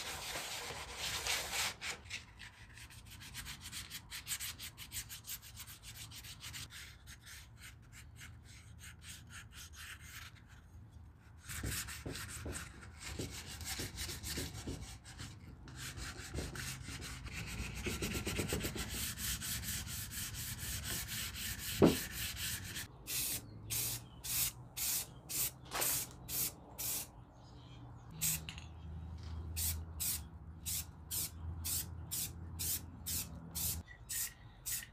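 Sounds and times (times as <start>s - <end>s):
hand sanding strokes: 16.0s - 22.9s.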